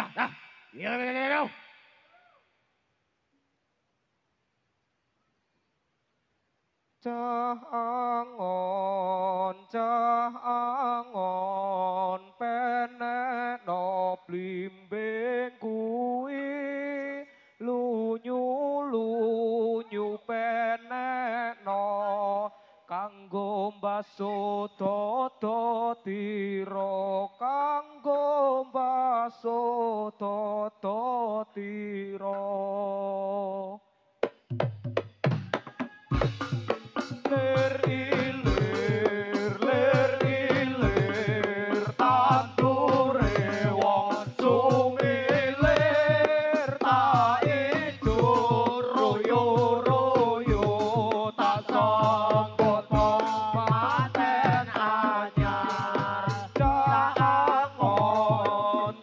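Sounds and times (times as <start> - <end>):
person singing unaccompanied: 0.0 - 1.6, 7.0 - 33.8, 35.5 - 59.0
drum strokes: 34.2 - 59.0.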